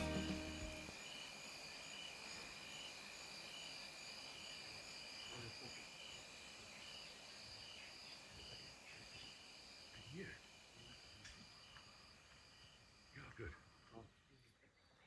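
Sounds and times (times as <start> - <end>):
insects trilling and chirping: 0.0 - 15.0.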